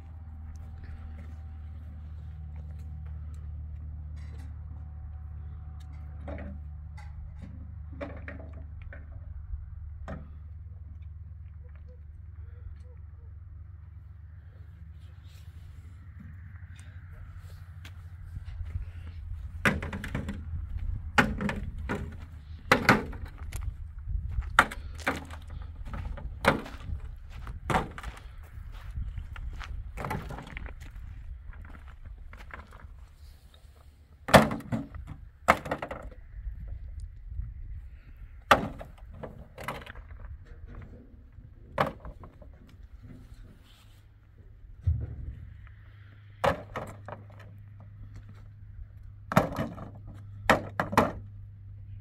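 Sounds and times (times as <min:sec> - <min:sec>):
low steady rumble: 0:00.0 - 0:52.0
steady low hum: 0:00.0 - 0:52.0
sharp knocks and cracks: 0:19.6 - 0:20.4, 0:21.2 - 0:23.7, 0:34.3 - 0:36.2, 0:38.5 - 0:40.2, 0:49.3 - 0:51.2.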